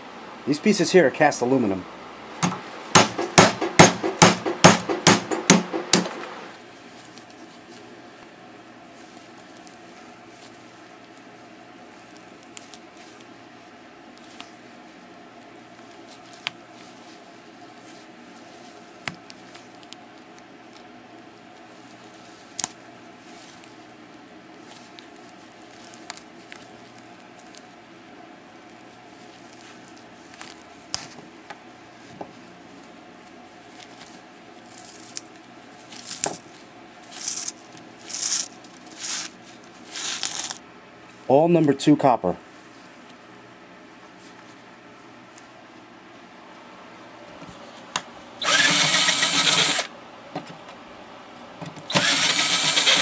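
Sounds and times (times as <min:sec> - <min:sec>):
steady low hum: 0:00.0 - 0:52.9
rustling: 0:06.3 - 0:41.3, 0:42.4 - 0:45.6.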